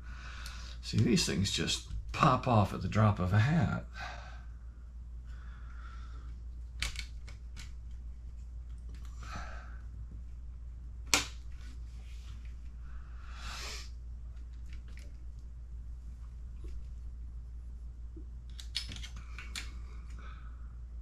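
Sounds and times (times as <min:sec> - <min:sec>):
soft rubbing and handling: 0:06.2 - 0:09.2, 0:11.4 - 0:13.0, 0:13.7 - 0:20.2
plastic parts snapping clicks: 0:06.8 - 0:07.8, 0:11.1 - 0:11.4, 0:18.5 - 0:20.2.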